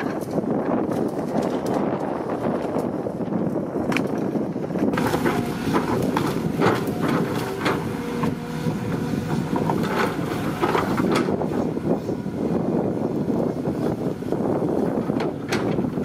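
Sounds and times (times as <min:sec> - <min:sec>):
excavator engine running: 0:00.0 - 0:16.0.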